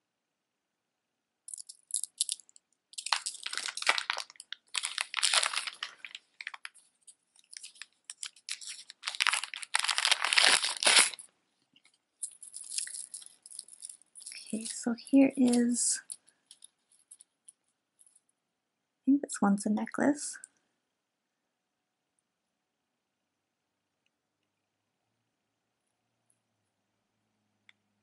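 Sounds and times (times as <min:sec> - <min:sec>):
plastic bag crinkling: 0:01.5 - 0:11.3, 0:12.2 - 0:17.3.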